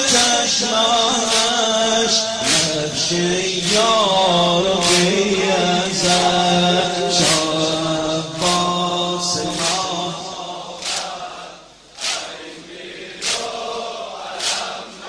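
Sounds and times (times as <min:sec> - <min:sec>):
man chanting a lament: 0:00.0 - 0:10.8
chest-beating slaps: 0:03.6 - 0:04.0, 0:04.8 - 0:05.2, 0:07.2 - 0:07.8, 0:10.8 - 0:11.2, 0:12.0 - 0:12.4, 0:13.2 - 0:13.6, 0:14.4 - 0:14.8
group of voices chanting: 0:04.7 - 0:15.0.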